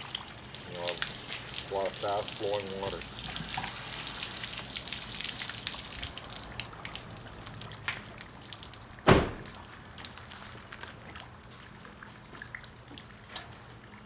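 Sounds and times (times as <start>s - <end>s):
water dripping: 0.0s - 14.0s
water splashing from hose: 0.0s - 14.0s
sharp thump: 9.1s - 9.5s.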